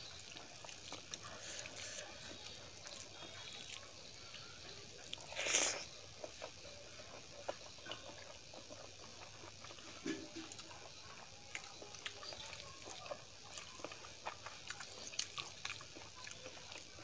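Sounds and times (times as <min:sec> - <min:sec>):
wet chewing and mouth smacking: 0:00.0 - 0:17.0
fingers squelching rice: 0:05.0 - 0:06.5
slurp: 0:05.2 - 0:05.9.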